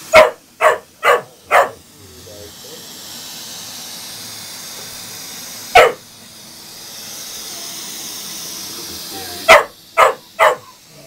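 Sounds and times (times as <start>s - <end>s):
robotic vacuum cleaner hissing: 0.0s - 11.0s
dog barking: 0.1s - 1.8s, 5.7s - 6.0s, 9.5s - 10.8s.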